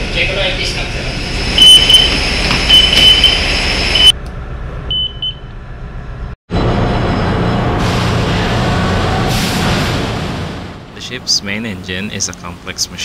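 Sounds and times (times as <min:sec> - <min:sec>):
short high electronic beeps: 0:01.6 - 0:02.1, 0:02.7 - 0:04.2
machinery drone: 0:05.5 - 0:13.0.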